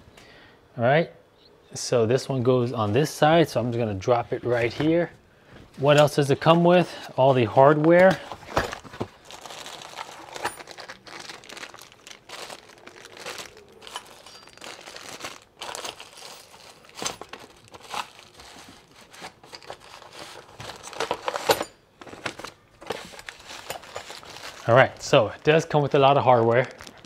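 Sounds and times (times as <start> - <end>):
plastic bags crinkling: 6.2 - 27.0
cardboard box rustling: 7.7 - 24.7.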